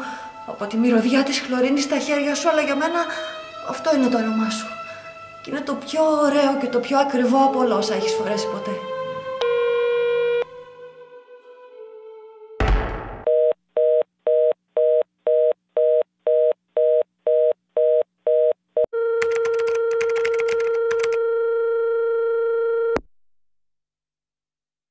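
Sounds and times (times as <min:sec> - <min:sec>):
telephone busy signal beeps: 0:09.4 - 0:10.4
buzzy phone line tone: 0:09.4 - 0:10.5, 0:16.8 - 0:23.0.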